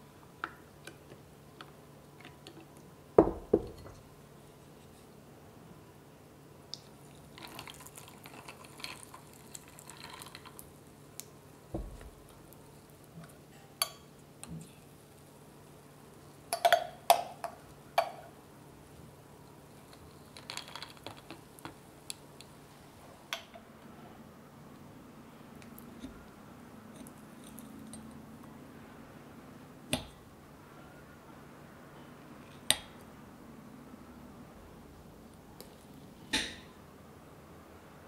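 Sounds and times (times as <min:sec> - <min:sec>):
dull knock: 0:03.2 - 0:03.8
frothed milk pouring: 0:06.8 - 0:10.8
coffee pouring into glass: 0:07.0 - 0:10.7.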